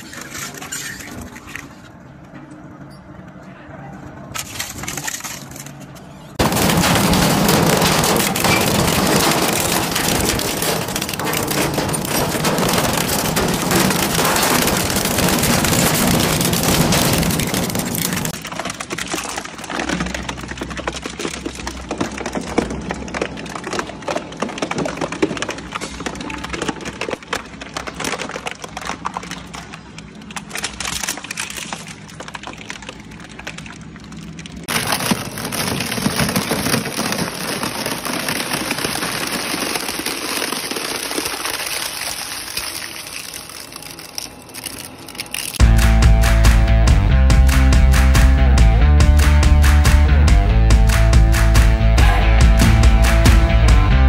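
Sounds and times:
shredder grinding plastic: 0:06.4 - 0:18.4, 0:34.7 - 0:45.6
shredder cracking and splintering wood: 0:06.4 - 0:21.1, 0:34.7 - 0:45.8.

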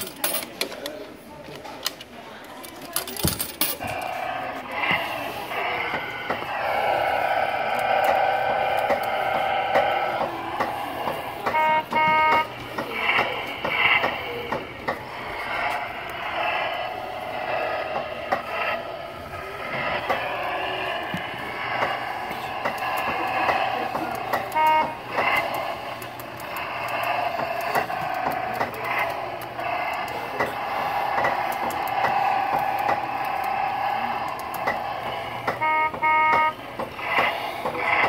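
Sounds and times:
kiddie ride running: 0:00.0 - 0:38.0
electronic horn beep: 0:11.5 - 0:12.5, 0:24.5 - 0:25.0, 0:35.6 - 0:36.6.

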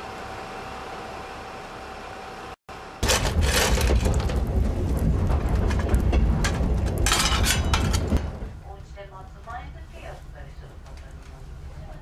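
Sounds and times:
train carriage rumble: 0:03.0 - 0:12.0.

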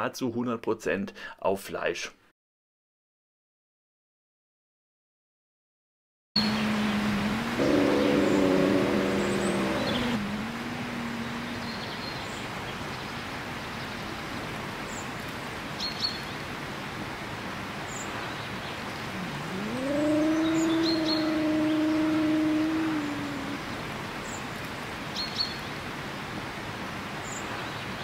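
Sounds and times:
wolf howling: 0:07.4 - 0:11.6, 0:19.1 - 0:23.9
faint bird chirps: 0:07.6 - 0:10.2, 0:19.0 - 0:24.4.

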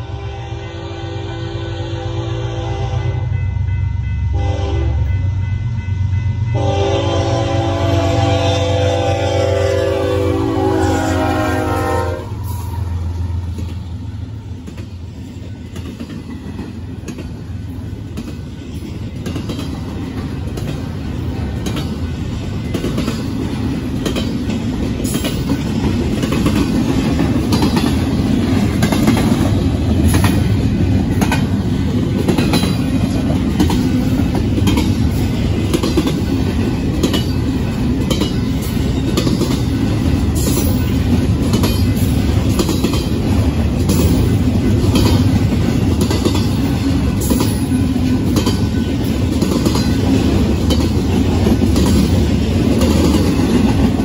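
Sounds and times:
train horn: 0:00.0 - 0:05.3, 0:06.1 - 0:13.1
diesel locomotive rumbling: 0:00.0 - 0:54.0
train wheels clacking over rail joints: 0:13.4 - 0:54.0.

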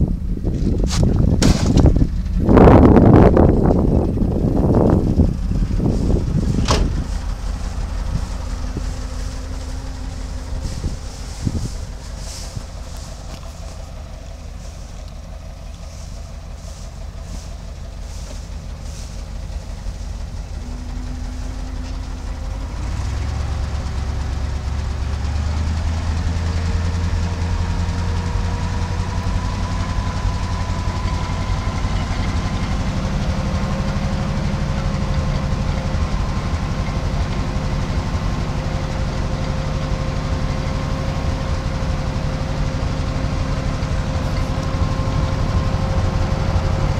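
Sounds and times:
truck engine idling: 0:00.0 - 0:46.9
hydraulic pump whine: 0:03.0 - 0:25.2.

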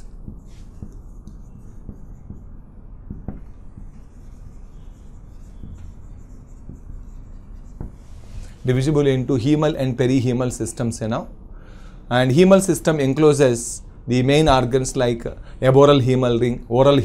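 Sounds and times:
marker squeaking on whiteboard: 0:00.0 - 0:09.0
steady low hum: 0:00.0 - 0:17.0.

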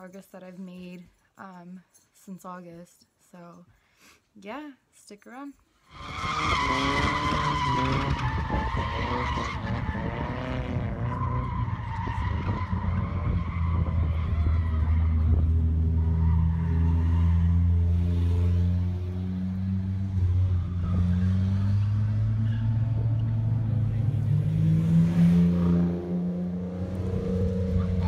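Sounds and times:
tyres screeching: 0:05.9 - 0:18.0
car engines revving: 0:05.9 - 0:28.0.

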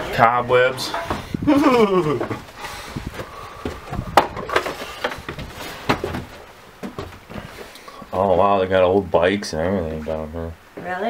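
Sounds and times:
footsteps on wooden stairs: 0:00.9 - 0:07.7.

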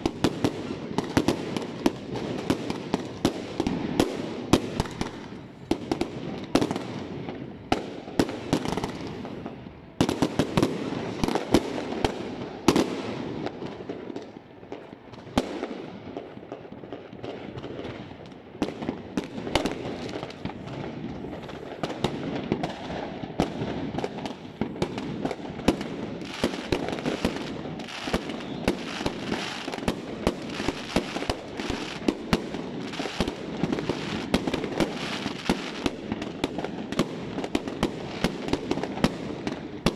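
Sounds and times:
fireworks bangs and cracks: 0:00.0 - 0:39.9.

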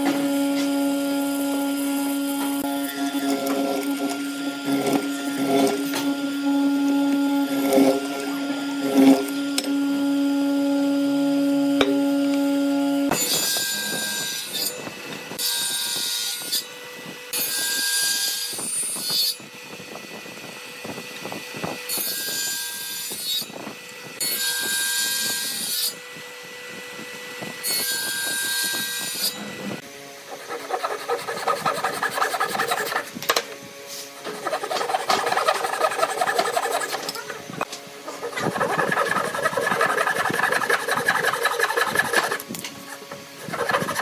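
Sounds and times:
table saw cutting wood: 0:00.0 - 0:44.0
hand saw strokes through wood: 0:30.2 - 0:33.2, 0:33.8 - 0:44.0.

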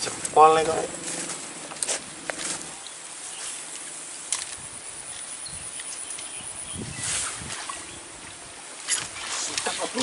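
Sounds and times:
insects buzzing: 0:00.0 - 0:10.0.

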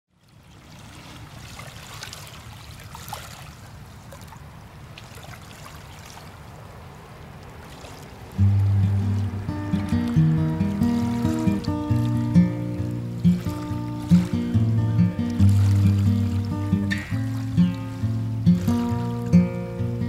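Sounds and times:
floodwater lapping and trickling: 0:00.1 - 0:20.0
small splashes: 0:00.1 - 0:20.0
steady low rumble: 0:08.4 - 0:13.6.

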